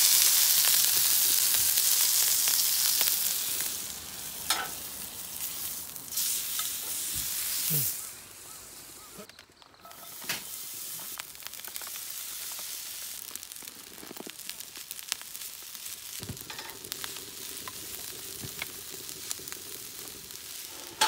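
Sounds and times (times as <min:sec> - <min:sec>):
meat sizzling in a pan: 0:00.0 - 0:21.0.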